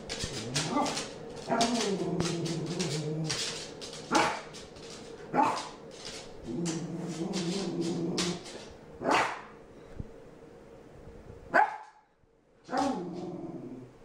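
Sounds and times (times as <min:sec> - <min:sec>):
dog barking: 0:04.1 - 0:04.5, 0:05.3 - 0:05.7, 0:09.0 - 0:09.5, 0:11.5 - 0:12.0.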